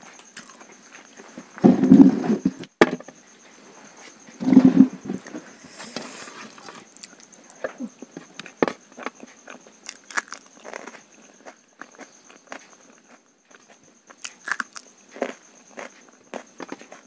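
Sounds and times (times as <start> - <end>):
chewing and mouth smacks: 11.8 - 16.4.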